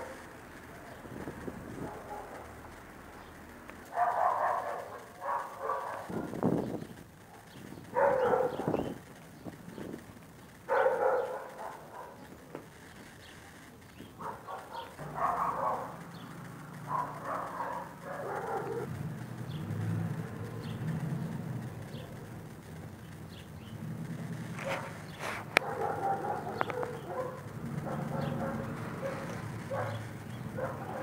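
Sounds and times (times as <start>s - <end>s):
dog barking: 1.8s - 2.5s, 3.9s - 6.4s, 7.3s - 9.0s, 10.7s - 12.4s, 14.2s - 16.1s, 16.8s - 18.9s, 24.6s - 31.0s.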